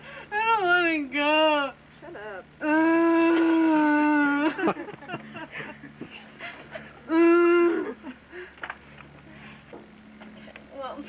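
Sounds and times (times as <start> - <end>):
girl mumbling: 2.0 - 4.6
girl whining wail: 2.0 - 4.8, 7.0 - 8.2.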